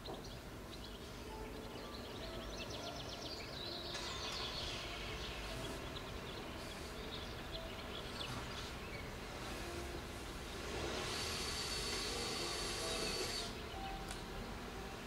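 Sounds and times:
bird chirps: 0.0s - 9.2s
low background hum: 0.0s - 15.0s.

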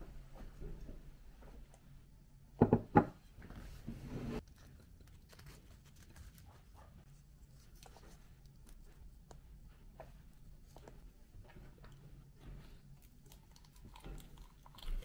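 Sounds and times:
plate knocking on wooden table: 2.6s - 3.2s
chair scraping: 3.8s - 4.4s.

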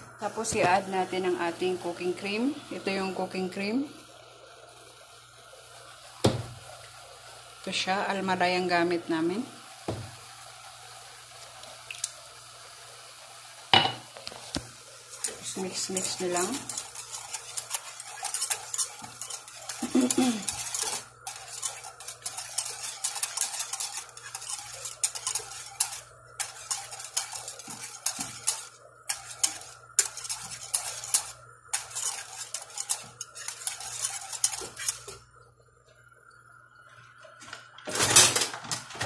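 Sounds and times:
whisk scraping metal saucepan: 13.8s - 35.2s.

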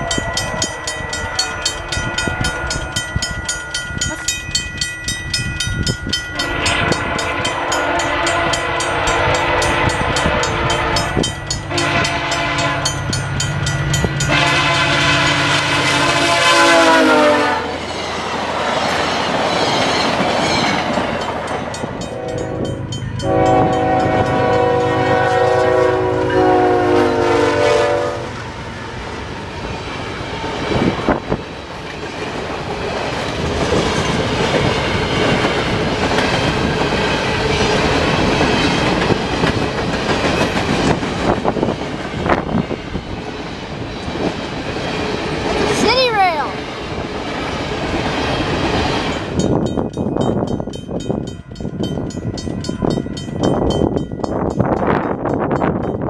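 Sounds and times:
train wheels clacking: 0.0s - 16.1s, 17.8s - 25.8s, 29.7s - 46.0s
train rumble: 0.0s - 56.0s
locomotive horn chord: 6.3s - 13.0s, 14.2s - 17.8s, 22.1s - 28.4s
freight train horn: 6.3s - 13.2s, 14.2s - 18.0s, 22.0s - 29.0s.

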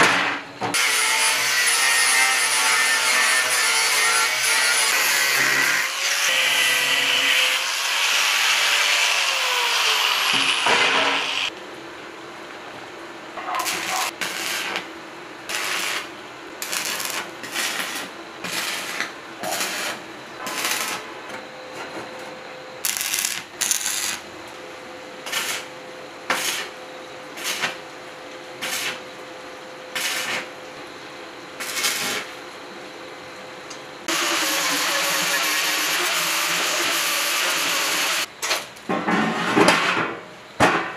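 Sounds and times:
angle grinder cutting sheet metal: 0.8s - 11.5s, 34.1s - 38.3s
arc welding crackling: 13.4s - 21.1s, 22.8s - 24.3s, 25.2s - 25.7s, 26.3s - 26.8s, 27.4s - 27.9s, 28.6s - 29.1s, 29.9s - 30.6s, 31.6s - 32.4s.

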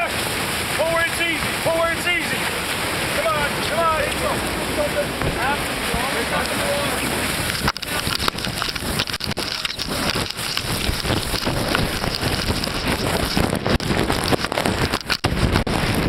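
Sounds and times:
wind buffeting microphone: 0.0s - 16.0s
sailcloth crumpling and scuffing: 7.5s - 16.0s.

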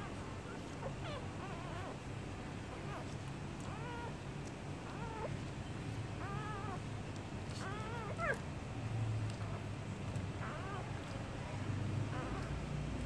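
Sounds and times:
puppies squeaking: 0.0s - 2.0s, 2.7s - 4.2s, 4.8s - 6.9s, 7.5s - 8.4s, 9.3s - 11.4s, 12.0s - 12.7s.

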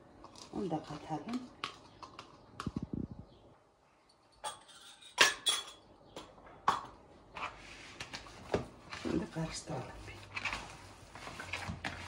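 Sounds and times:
utensils clinking against bowl: 4.4s - 5.9s.

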